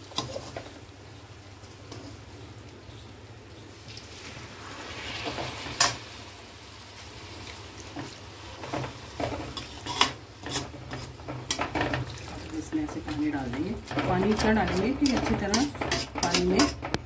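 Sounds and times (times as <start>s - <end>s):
light sizzle: 0.0s - 17.0s
metal spoon scraping pan: 8.0s - 17.0s.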